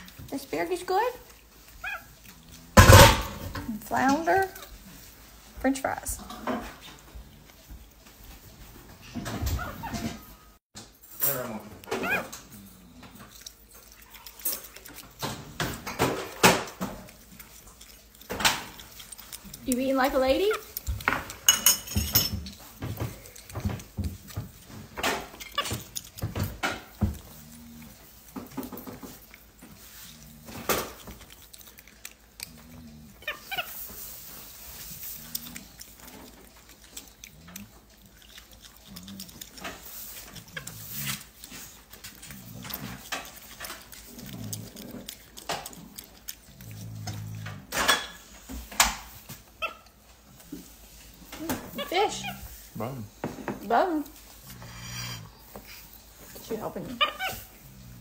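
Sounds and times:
monkey chewing crunchy food: 0.0 - 58.0
soft low animal sounds: 22.7 - 58.0.

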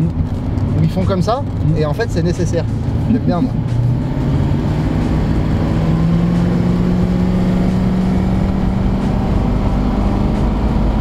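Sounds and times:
car engine drone rising: 0.0 - 11.0
road rumble: 0.0 - 11.0.

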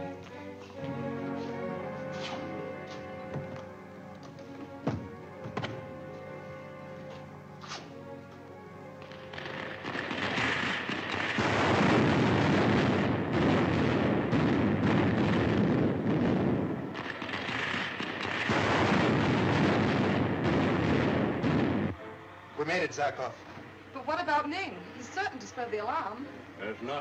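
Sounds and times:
rocket rushing roar with crackle: 9.0 - 22.0.

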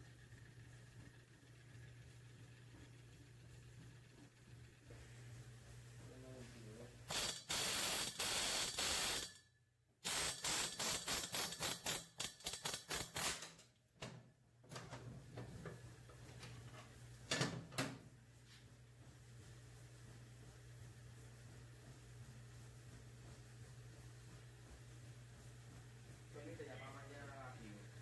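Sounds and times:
pneumatic air hammer bursts: 7.1 - 9.4, 10.0 - 13.6.

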